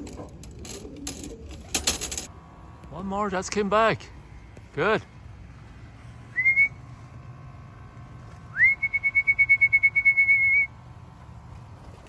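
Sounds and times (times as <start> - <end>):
person whistling: 6.3 - 6.8, 8.5 - 10.7.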